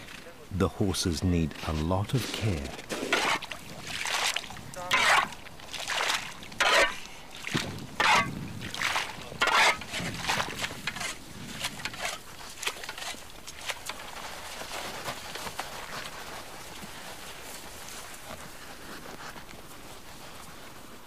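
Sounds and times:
water splashing: 0:02.3 - 0:10.7.

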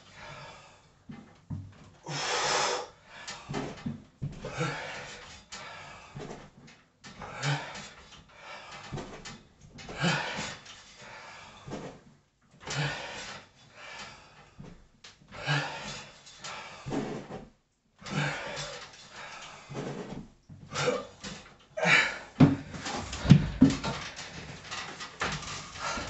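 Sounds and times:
man exhaling forcefully: 0:02.1 - 0:02.9, 0:20.7 - 0:21.2, 0:21.8 - 0:23.8
thumps: 0:22.4 - 0:26.0.

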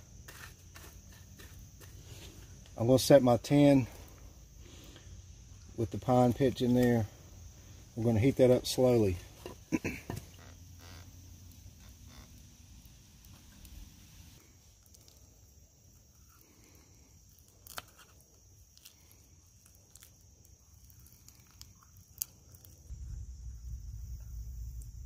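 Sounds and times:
high-pitched insect drone: 0:09.8 - 0:13.0
low rumble: 0:22.9 - 0:25.0.

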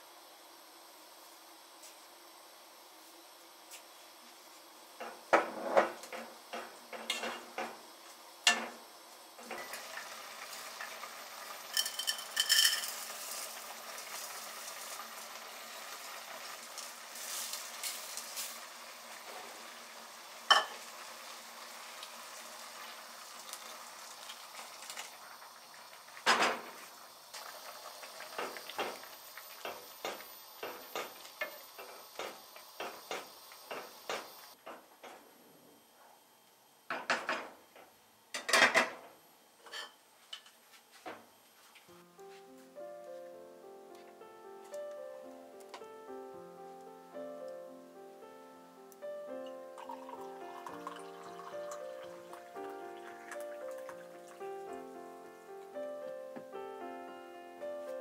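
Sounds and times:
food sizzling: 0:05.1 - 0:34.6, 0:42.8 - 0:58.0.

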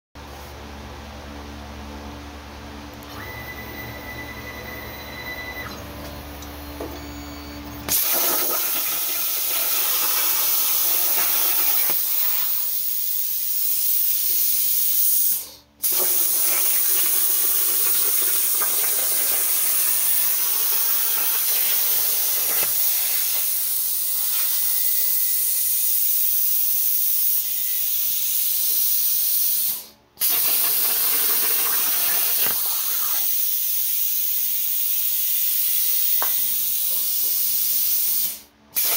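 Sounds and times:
plasma cutter arc hissing: 0:07.9 - 0:38.9.

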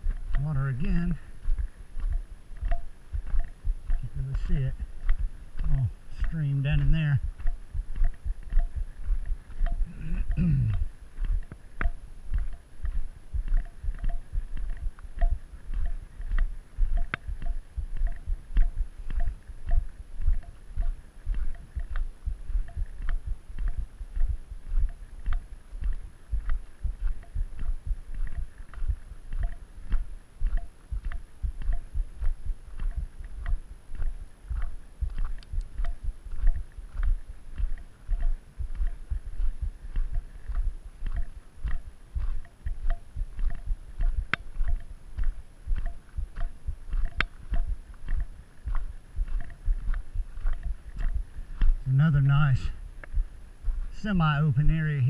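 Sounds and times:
footsteps on gravel: 0:00.0 - 0:55.0
faint light tick: 0:10.7 - 0:51.8.

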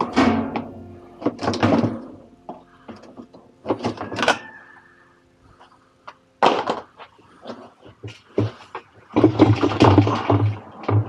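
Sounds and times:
washing machine tub scraping and knocking: 0:08.1 - 0:11.0.

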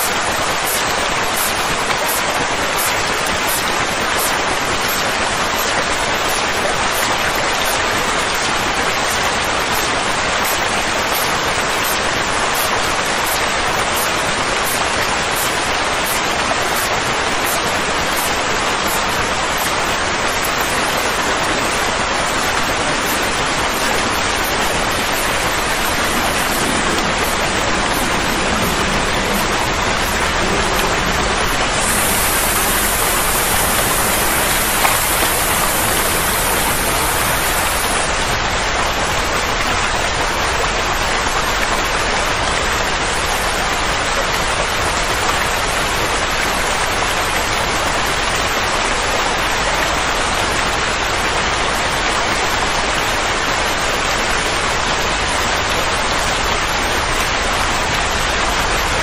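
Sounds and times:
steady rushing hiss: 0:22.3 - 0:38.3.

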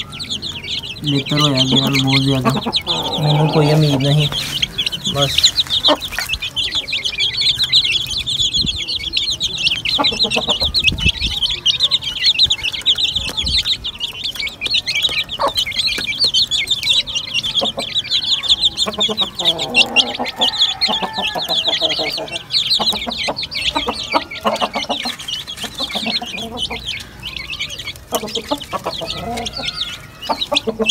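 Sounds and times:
chicks peeping: 0:00.0 - 0:30.9
hen clucking: 0:00.0 - 0:30.9.

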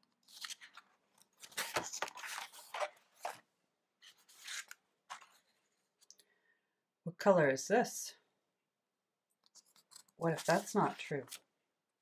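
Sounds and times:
paper rustling and crinkling: 0:00.0 - 0:03.4, 0:04.0 - 0:05.5, 0:09.5 - 0:11.4.

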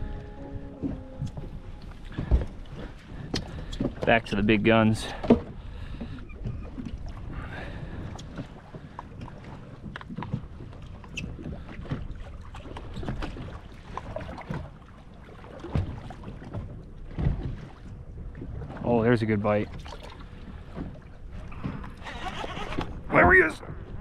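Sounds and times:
low rumble: 0:00.0 - 0:03.6.

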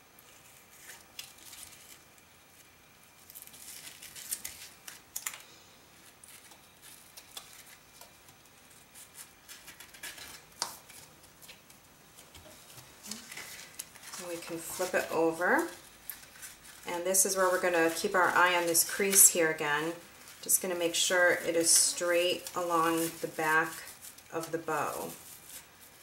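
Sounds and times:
hands rustling and scraping ribbon: 0:06.0 - 0:26.0.

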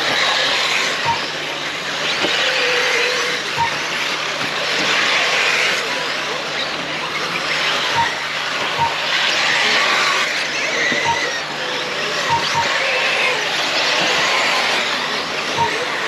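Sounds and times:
rc cars racing: 0:00.0 - 0:16.0
short beeps: 0:01.0 - 0:01.3, 0:03.6 - 0:03.8, 0:08.0 - 0:08.2, 0:08.8 - 0:09.0, 0:11.0 - 0:11.4, 0:12.3 - 0:12.7.

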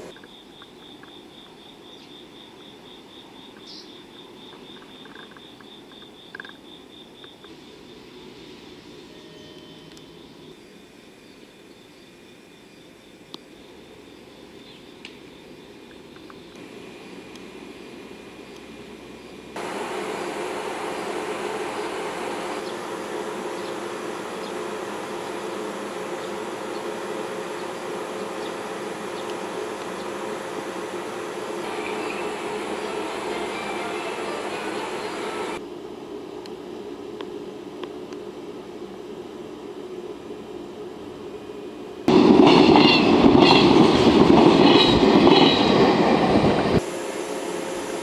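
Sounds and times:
locomotive machinery hum and whir: 0:00.0 - 0:11.4, 0:14.6 - 0:48.0
insect chirping: 0:00.0 - 0:17.3, 0:18.0 - 0:35.6.

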